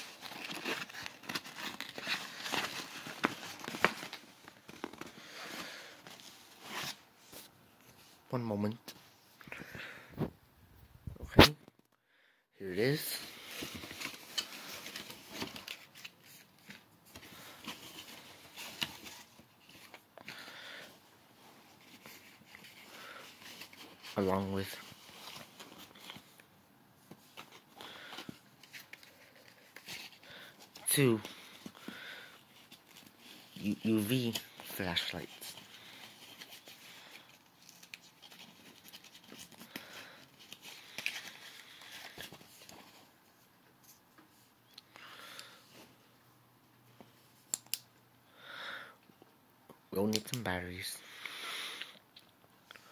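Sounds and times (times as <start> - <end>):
packaging rustling: 0.0 - 7.1, 13.2 - 26.5, 27.1 - 43.3.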